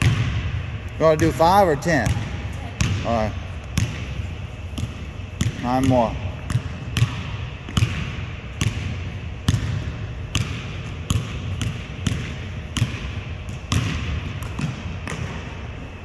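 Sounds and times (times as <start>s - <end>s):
basketball bouncing on hardwood: 9.5s - 15.4s.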